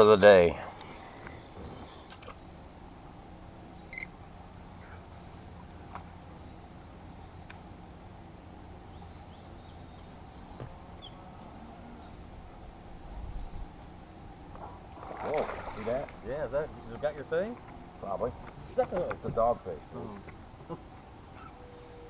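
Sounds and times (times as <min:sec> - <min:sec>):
low hum: 0:00.0 - 0:18.8.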